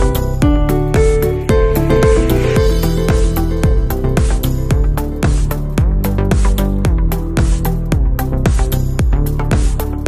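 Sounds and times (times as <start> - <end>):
electronic dance music: 0.0 - 8.7.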